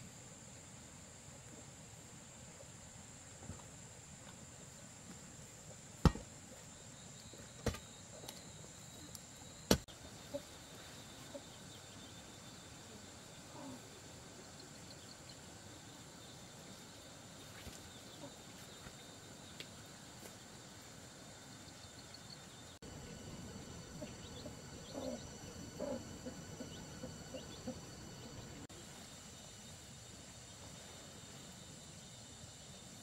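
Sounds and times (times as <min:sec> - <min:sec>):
high insect trill: 0:00.0 - 0:33.0
sharp knocks: 0:06.0 - 0:06.3.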